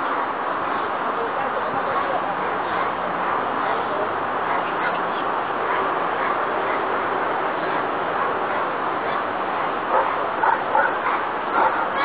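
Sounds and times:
dog yelping barks: 0:09.9 - 0:12.0.

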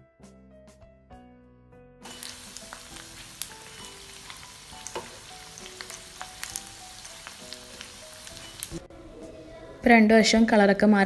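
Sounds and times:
deep-frying sizzle with pops: 0:02.0 - 0:08.8
metal spoon turning food in pan: 0:02.0 - 0:08.8.

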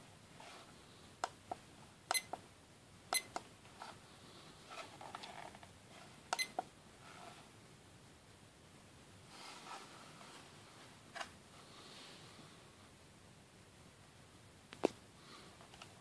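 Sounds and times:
alarm clock key-press beeps: 0:02.1 - 0:02.4, 0:03.1 - 0:03.4, 0:06.4 - 0:06.6.

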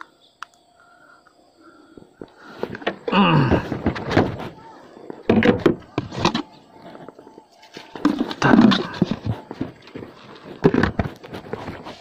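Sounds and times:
plastic tray clattering: 0:05.2 - 0:06.5, 0:07.8 - 0:12.0.

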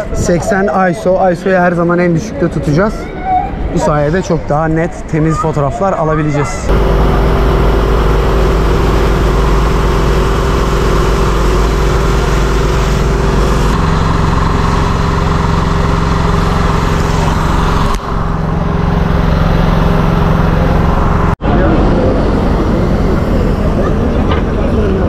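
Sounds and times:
idling engine hum: 0:06.7 - 0:25.0.

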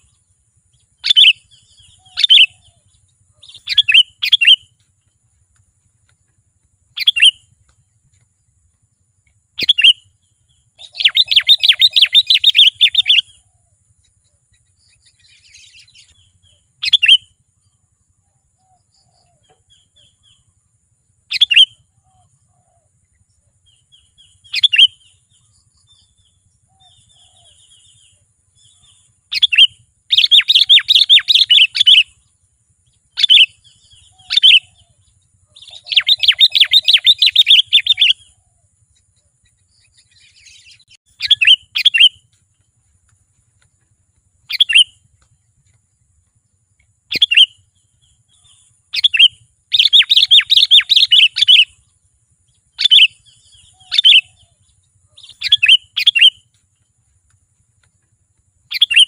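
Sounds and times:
bird fast chattering: 0:03.4 - 0:04.6, 0:07.0 - 0:07.4, 0:10.8 - 0:13.3, 0:29.3 - 0:32.1, 0:35.5 - 0:38.2, 0:39.9 - 0:42.2, 0:44.5 - 0:45.0, 0:47.1 - 0:47.6, 0:48.3 - 0:51.8.

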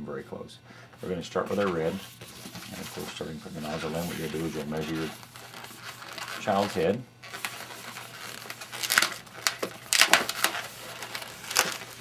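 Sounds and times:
balloon squeaking and rubbing: 0:01.9 - 0:12.0.

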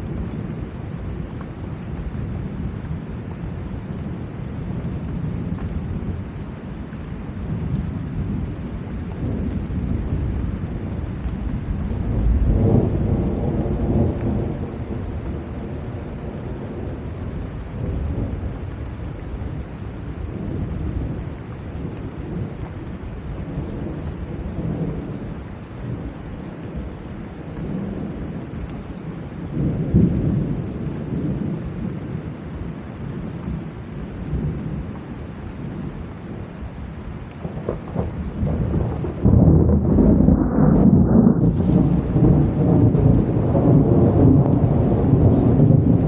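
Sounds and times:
heavy rain: 0:00.0 - 0:46.0
rolling thunder rumble: 0:00.0 - 0:46.0.

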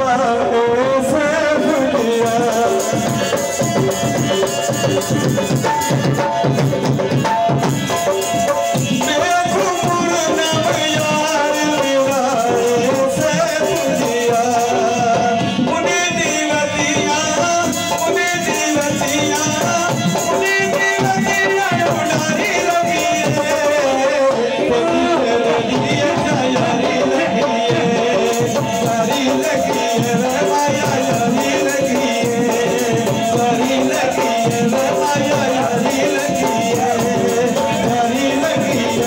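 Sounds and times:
hand drum rhythm: 0:00.0 - 0:39.0
harmonium playing: 0:00.0 - 0:39.0
man singing: 0:00.0 - 0:39.0.

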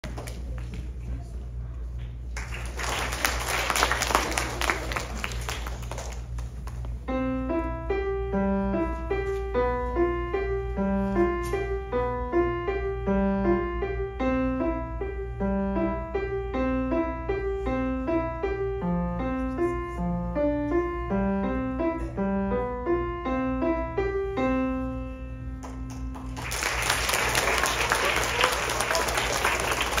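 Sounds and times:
steady low hum: 0:00.0 - 0:30.0
audience applause: 0:02.4 - 0:06.6, 0:26.1 - 0:30.0
grand piano piece: 0:02.8 - 0:30.0.

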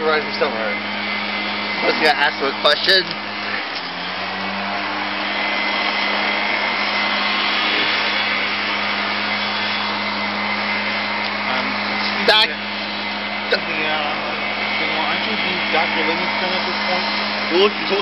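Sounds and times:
mechanical drone with hiss: 0:00.0 - 0:18.0.

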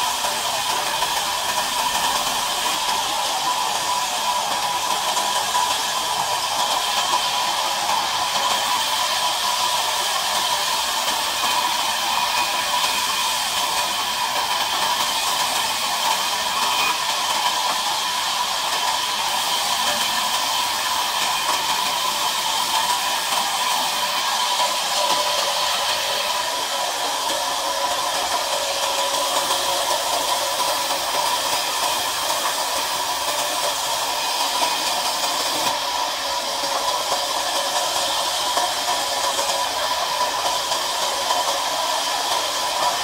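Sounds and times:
band saw whirring: 0:00.0 - 0:43.0.

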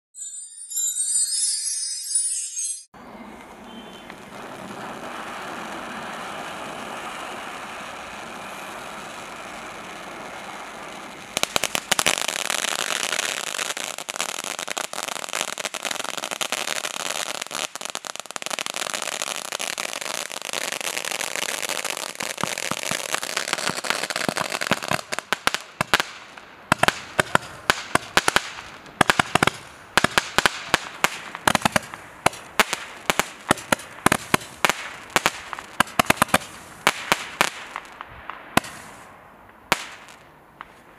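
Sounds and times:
firework crackling: 0:03.3 - 0:40.9
firework hissing spray: 0:04.0 - 0:14.7, 0:38.6 - 0:39.1
firework cracks and pops: 0:04.1 - 0:40.9.

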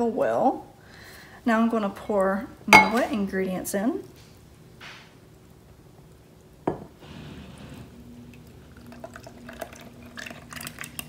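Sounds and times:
faint steady hum: 0:00.0 - 0:11.0
liquid pouring: 0:07.0 - 0:11.0.

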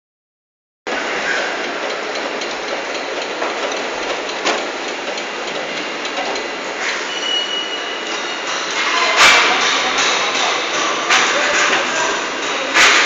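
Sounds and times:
production-line machinery din: 0:00.9 - 0:13.0
sharp metallic clanks: 0:08.0 - 0:13.0.

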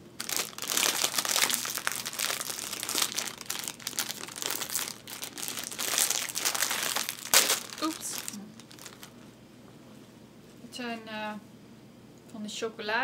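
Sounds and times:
plastic bag crinkling: 0:00.0 - 0:09.2.

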